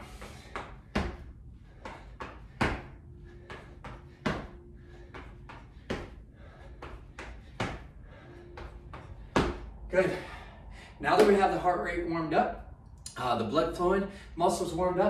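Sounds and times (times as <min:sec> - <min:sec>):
feet landing on wooden floor: 0:01.9 - 0:04.6, 0:08.6 - 0:09.7.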